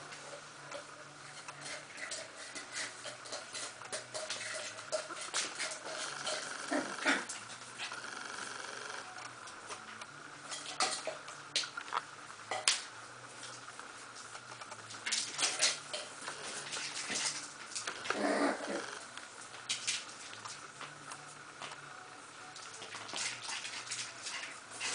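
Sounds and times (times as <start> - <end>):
puppy vocalisation: 6.0 - 8.2, 18.0 - 19.0.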